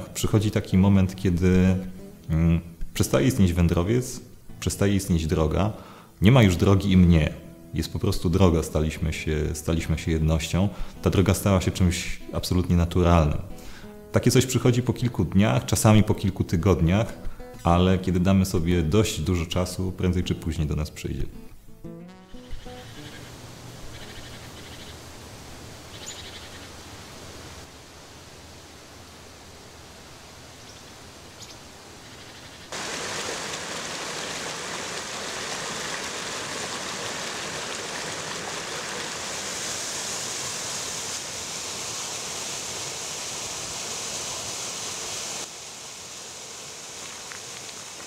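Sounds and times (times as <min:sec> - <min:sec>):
low hum and hiss: 0:00.0 - 0:48.0
rushing water: 0:32.7 - 0:48.0
stream splashing over waterfall: 0:32.7 - 0:48.0.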